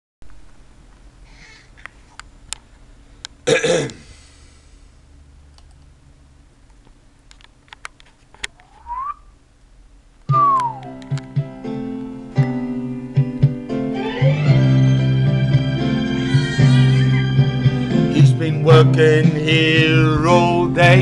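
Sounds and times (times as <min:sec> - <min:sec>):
brief rising whistle: 0:08.6 - 0:09.3, 0:10.3 - 0:11.0
acoustic guitar music: 0:10.3 - 0:21.0.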